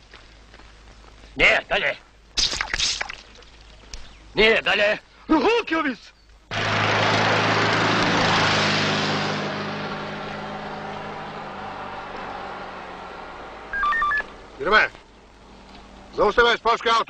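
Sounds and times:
car speeding past: 0:06.5 - 0:14.6.

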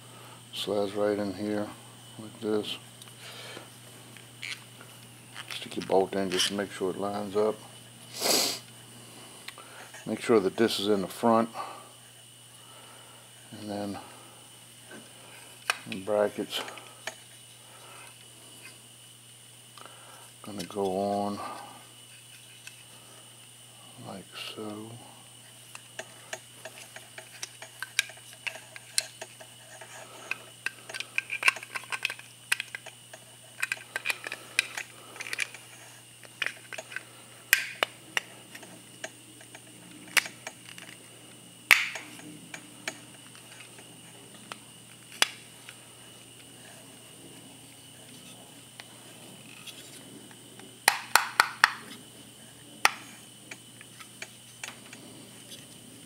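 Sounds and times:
hard plastic parts clicking: 0:33.6 - 0:35.6.

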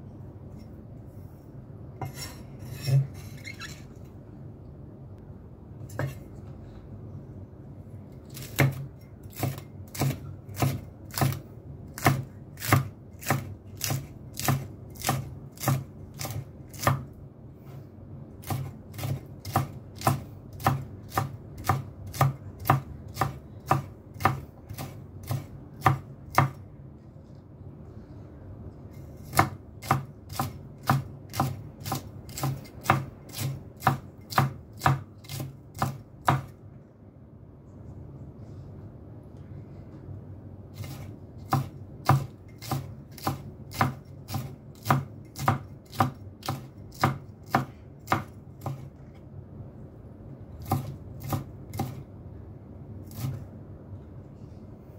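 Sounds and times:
knife chopping on cutting board: 0:08.3 - 0:17.0, 0:18.4 - 0:26.6, 0:29.2 - 0:36.5, 0:40.8 - 0:48.9.

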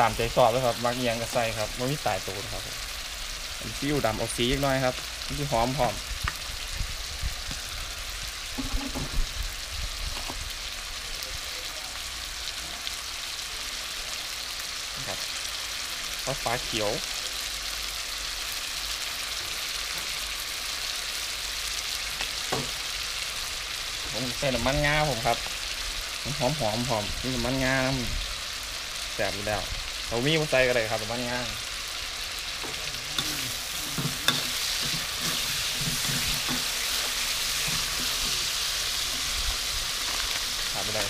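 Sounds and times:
food sizzling in wok: 0:00.0 - 0:41.0
metal spatula scraping wok: 0:32.0 - 0:40.8.

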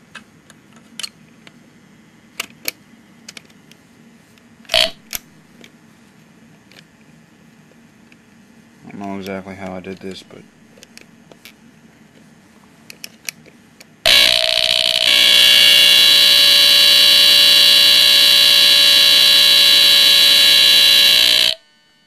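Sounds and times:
smoke alarm high-pitched tone: 0:14.1 - 0:21.7.

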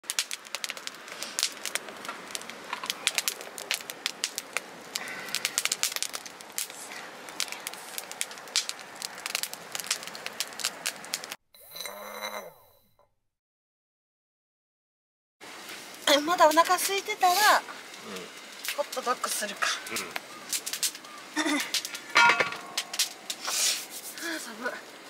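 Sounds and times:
fire hissing: 0:00.0 - 0:11.4, 0:15.4 - 0:25.0
firewood crackling and popping: 0:00.0 - 0:11.4, 0:15.4 - 0:25.0.

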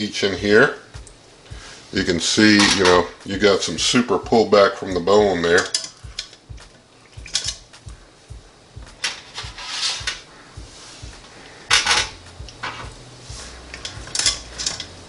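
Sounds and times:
tongs scraping metal pot: 0:01.6 - 0:07.8, 0:09.0 - 0:10.4, 0:11.0 - 0:15.0.

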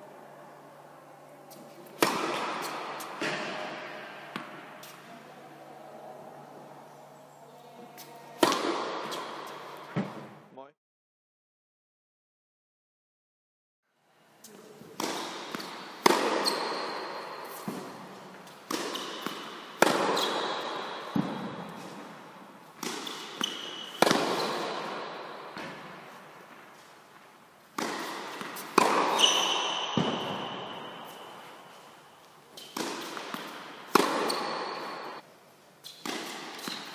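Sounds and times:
tennis balls struck by rackets: 0:01.5 - 0:05.0, 0:08.4 - 0:10.3, 0:14.9 - 0:26.9, 0:27.7 - 0:31.8, 0:32.6 - 0:35.2, 0:35.9 - 0:36.9
tennis balls bouncing on court: 0:01.9 - 0:05.0, 0:08.4 - 0:10.3, 0:15.0 - 0:31.8, 0:32.6 - 0:35.2, 0:35.9 - 0:36.9.

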